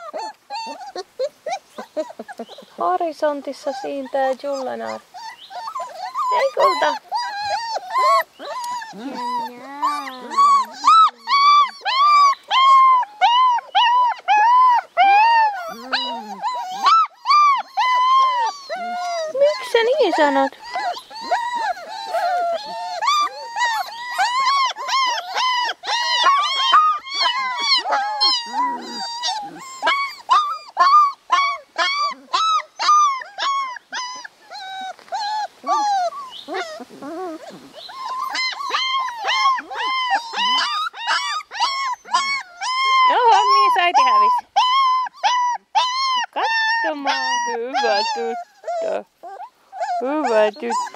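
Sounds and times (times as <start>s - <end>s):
puppy whining: 0.0s - 50.9s.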